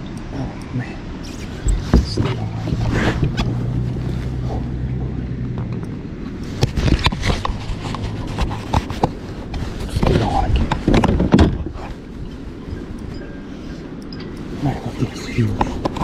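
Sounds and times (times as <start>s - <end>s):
low hum: 0.0s - 16.0s
camera gear knocking and rustling: 6.6s - 11.9s.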